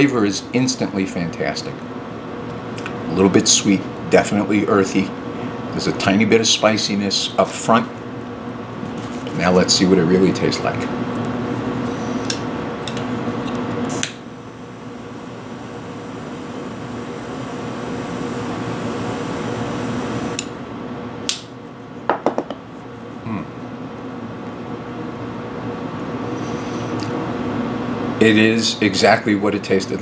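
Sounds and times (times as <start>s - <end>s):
jet-flame lighter hissing: 13.9s - 20.6s.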